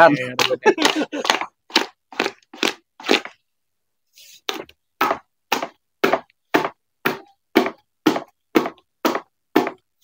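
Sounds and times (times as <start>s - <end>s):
paddle slapping thick batter: 0.4s - 3.4s.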